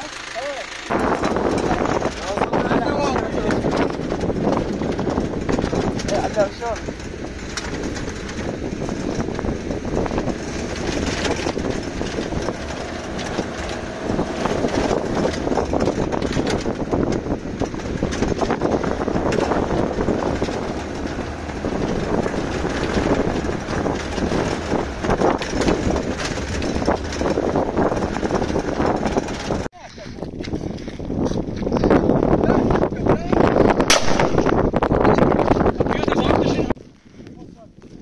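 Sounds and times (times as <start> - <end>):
metal railings rattling: 0.0 - 29.7
truck engine and road noise: 0.0 - 37.2.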